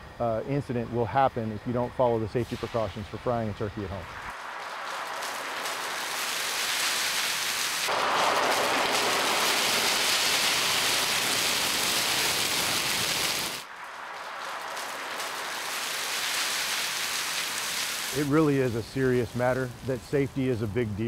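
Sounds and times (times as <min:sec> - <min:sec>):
oil fire hissing and crackling: 0:00.0 - 0:21.0.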